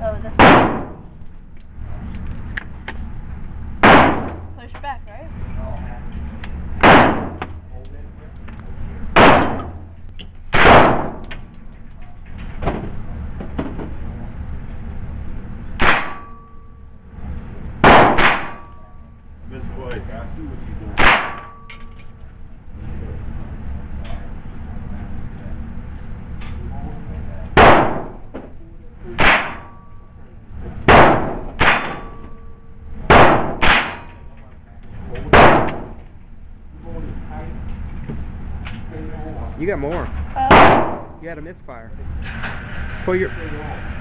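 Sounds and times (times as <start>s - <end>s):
rifle shots with echo: 0.4s - 1.0s, 3.8s - 4.4s, 6.8s - 7.4s, 9.2s - 9.8s, 10.5s - 11.2s, 17.8s - 18.6s, 27.6s - 28.2s, 30.9s - 32.1s, 33.1s - 34.1s, 35.3s - 35.9s, 40.5s - 41.1s
faint rifle shots: 6.8s - 7.4s.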